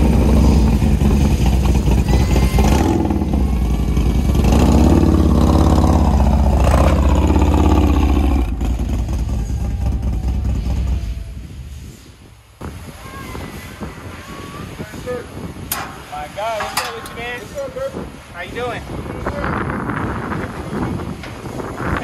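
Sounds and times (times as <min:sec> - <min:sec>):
motorcycle engine revving: 0:00.0 - 0:11.2.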